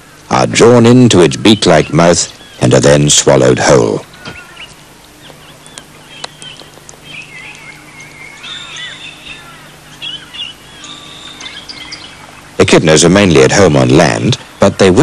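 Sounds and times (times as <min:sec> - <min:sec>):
faint low hum: 0:00.0 - 0:15.0
birds chirping and whistling: 0:01.0 - 0:03.0, 0:04.0 - 0:15.0.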